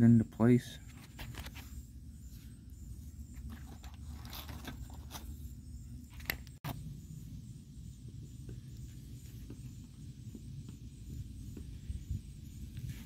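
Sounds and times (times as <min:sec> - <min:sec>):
low outdoor rumble: 0:01.6 - 0:13.0
light scraping and clicking: 0:03.4 - 0:05.4.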